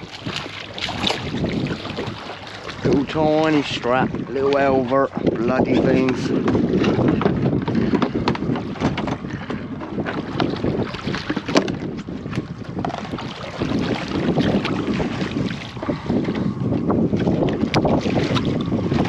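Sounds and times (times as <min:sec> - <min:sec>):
wind buffeting microphone: 0:00.0 - 0:19.0
fishing rod clicks and knocks: 0:11.2 - 0:13.1.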